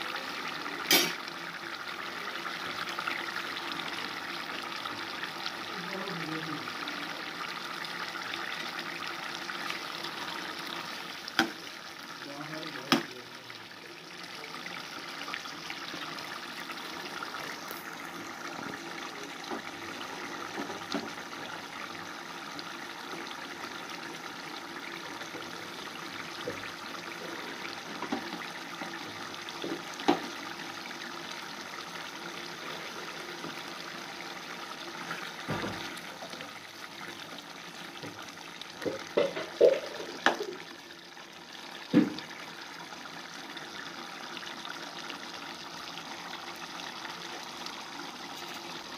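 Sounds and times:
gravy bubbling in a pan: 0.0s - 48.9s.

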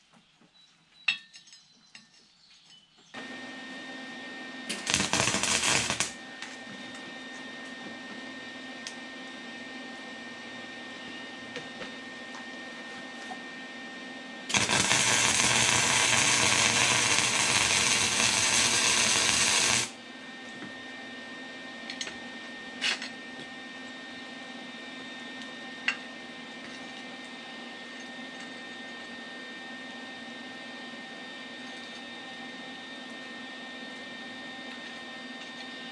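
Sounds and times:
welding arc hissing: 4.7s - 6.6s, 14.5s - 20.0s.

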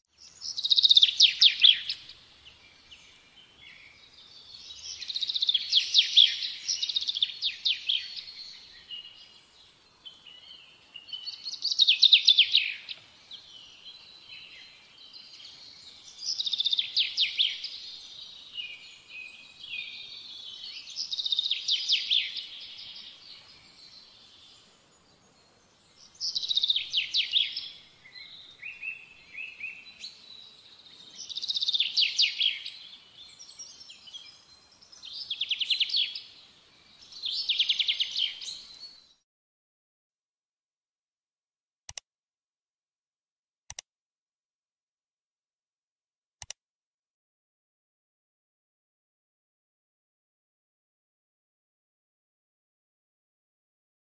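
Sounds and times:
soft bird chirps: 0.0s - 39.2s
bird trilling song: 0.1s - 39.2s.

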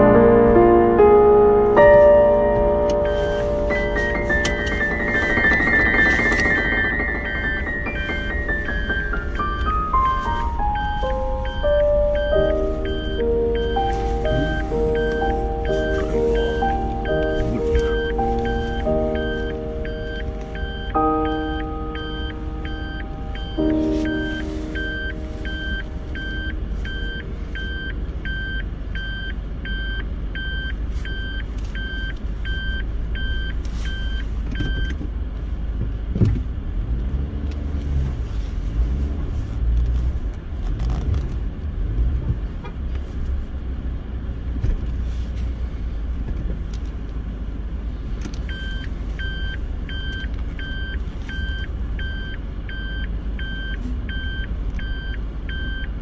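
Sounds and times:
vehicle engine rumble: 0.0s - 56.0s
reverse warning beeper: 2.4s - 34.9s.

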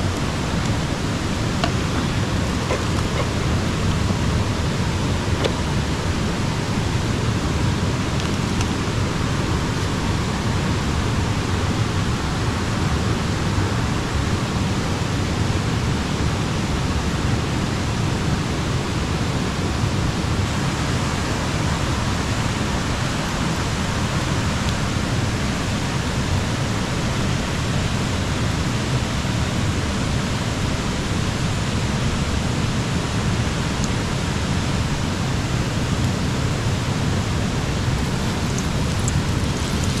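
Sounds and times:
stream water rushing: 0.0s - 40.0s.

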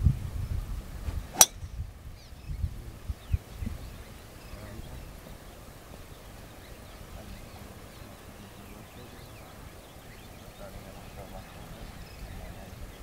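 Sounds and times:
wind rumble on microphone: 0.0s - 6.2s
faint bird chirps: 1.4s - 13.0s.

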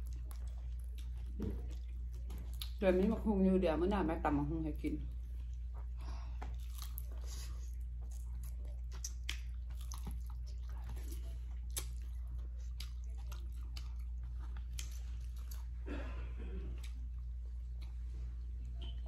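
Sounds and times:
biting and chewing: 0.0s - 3.1s, 5.1s - 15.8s
steady low hum: 0.0s - 19.0s.

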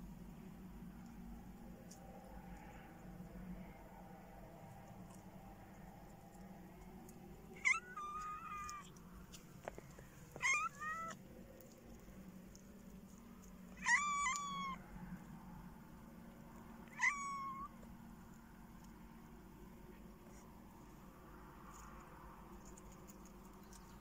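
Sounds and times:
cat meowing: 7.6s - 8.9s, 10.4s - 11.2s, 13.7s - 14.8s, 16.8s - 17.7s.

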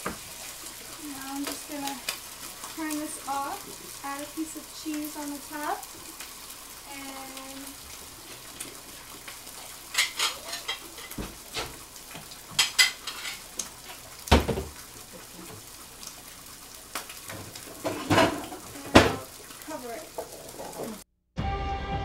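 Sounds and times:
faint sizzling: 0.0s - 21.0s
utensils clinking against pans: 9.8s - 11.8s, 12.5s - 14.0s, 17.3s - 19.3s.

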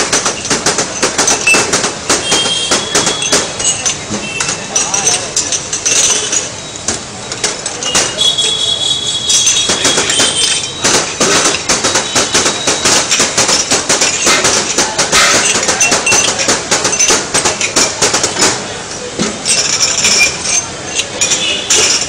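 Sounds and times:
glass tumblers clattering on counter: 0.0s - 22.0s.

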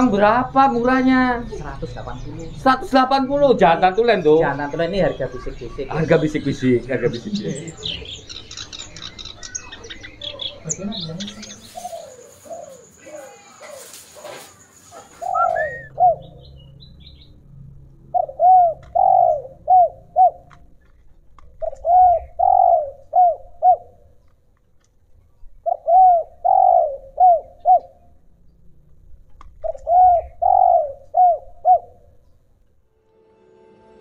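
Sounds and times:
faint high bird chirps: 4.1s - 17.3s
dove cooing: 7.1s - 16.5s, 18.0s - 20.7s, 21.4s - 24.2s, 25.6s - 28.2s, 29.5s - 32.2s.

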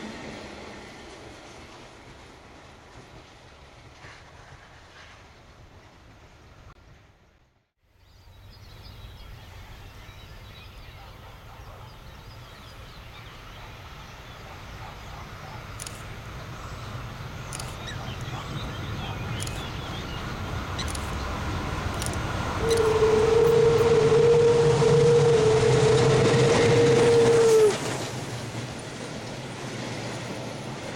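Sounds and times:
steam locomotive rumble: 0.0s - 7.4s, 11.2s - 30.9s
birds chirping: 8.4s - 22.9s
sharp high clicks: 15.6s - 16.2s, 17.5s - 18.3s, 19.3s - 19.8s, 20.8s - 23.0s.

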